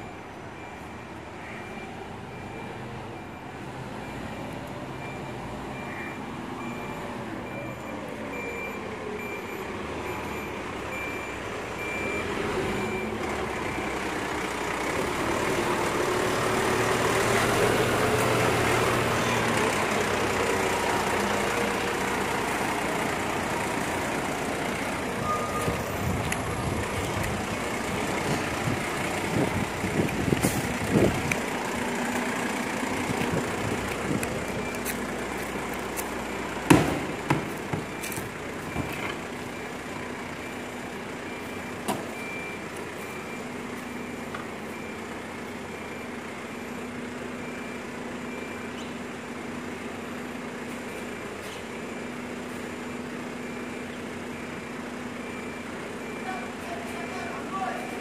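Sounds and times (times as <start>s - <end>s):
reversing alarm beeping: 0.0s - 14.6s, 20.7s - 30.0s, 37.2s - 49.0s, 50.9s - 58.0s
diesel truck engine running: 0.0s - 58.0s.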